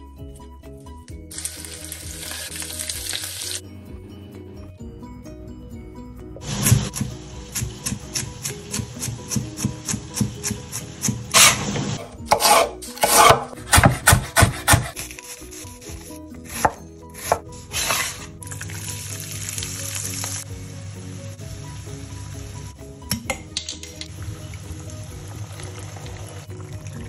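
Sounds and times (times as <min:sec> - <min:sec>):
vegetables sizzling in a pan: 0:01.3 - 0:03.6, 0:17.7 - 0:22.8
knife chopping on wooden board: 0:12.3 - 0:18.2.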